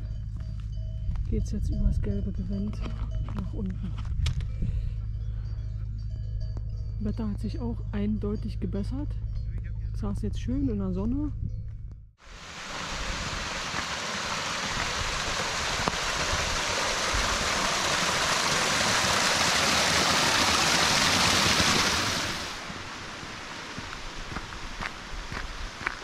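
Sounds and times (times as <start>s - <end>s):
waterfall splashing on stones: 12.3s - 26.0s.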